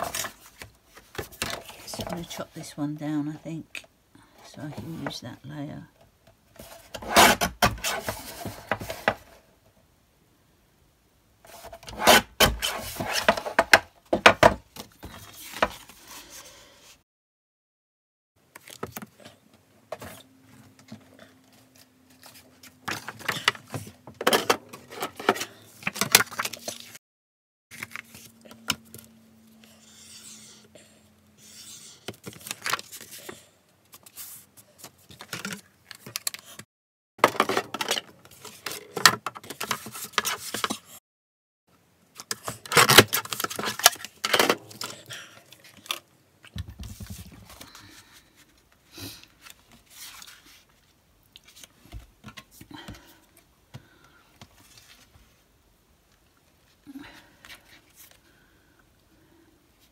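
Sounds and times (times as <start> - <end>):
card paper rustling and sliding: 27.7 - 29.1.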